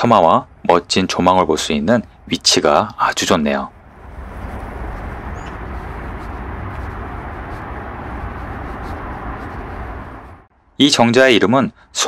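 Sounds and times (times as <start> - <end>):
heavy low rumble: 1.8 - 10.5
faint high bird chirp: 5.3 - 5.6.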